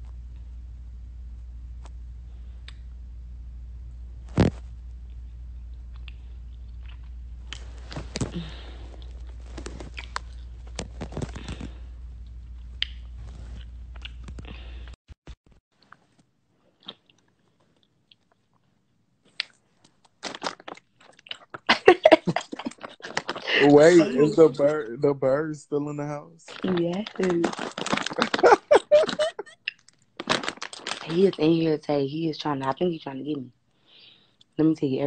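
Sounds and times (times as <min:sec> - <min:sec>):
steady low hum: 0:00.0 - 0:15.0, 0:21.8 - 0:29.5.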